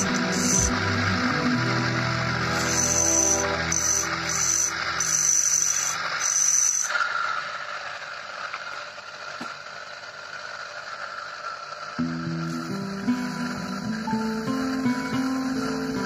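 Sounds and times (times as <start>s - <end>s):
background music: 0.0s - 5.9s, 12.0s - 16.0s
guitar music: 0.0s - 6.2s, 12.0s - 16.0s
gemstone grinding on spinning disc: 0.0s - 14.7s.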